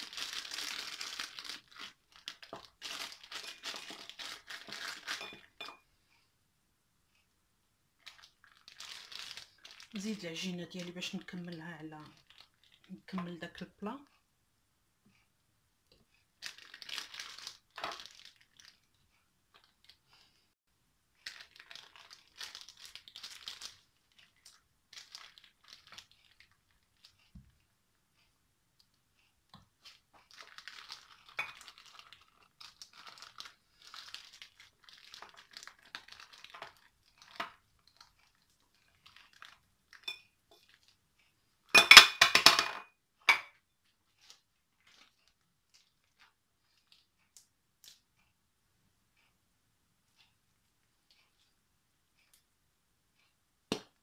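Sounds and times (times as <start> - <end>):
plastic piping bag crinkling: 0.0 - 5.6, 8.0 - 13.9, 16.4 - 20.3, 21.1 - 27.4, 29.7 - 41.0, 43.8 - 47.2.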